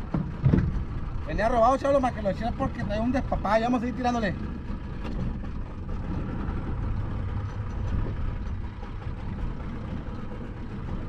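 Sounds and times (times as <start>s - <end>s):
wind rumbling on microphone: 4.5s - 11.0s.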